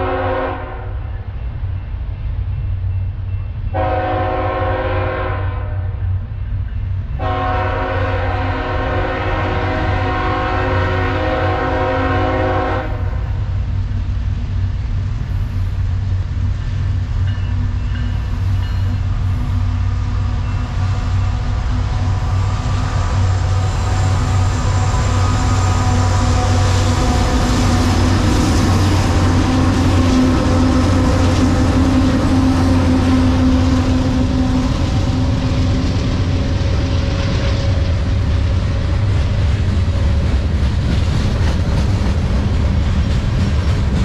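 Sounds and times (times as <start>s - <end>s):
locomotive air horn: 0.0s - 1.0s, 3.8s - 6.0s, 7.2s - 13.2s, 21.2s - 34.9s
low rumble of train: 0.0s - 44.0s.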